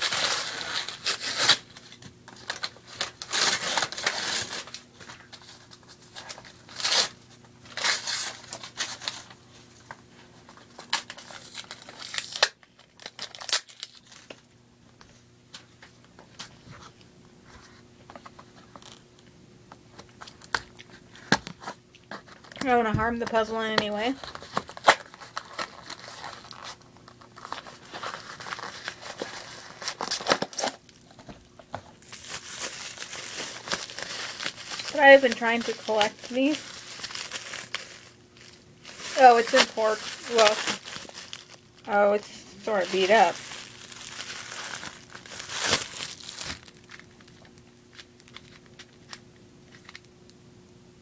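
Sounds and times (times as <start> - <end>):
packing wrap crinkling and tearing: 0.0 - 14.5, 23.3 - 31.4, 32.0 - 50.1.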